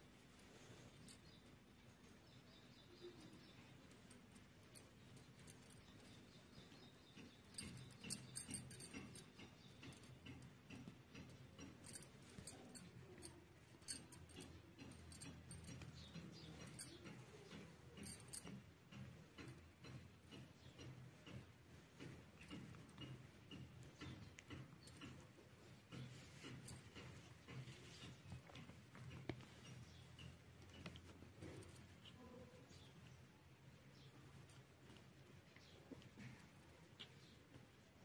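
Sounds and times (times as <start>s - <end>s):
sharp ticks: 5.5s - 31.9s.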